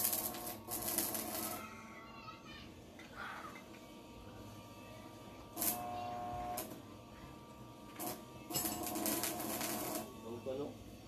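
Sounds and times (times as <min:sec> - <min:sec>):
handheld power tool on metal: 0:00.0 - 0:01.8, 0:05.5 - 0:06.8, 0:07.8 - 0:10.7.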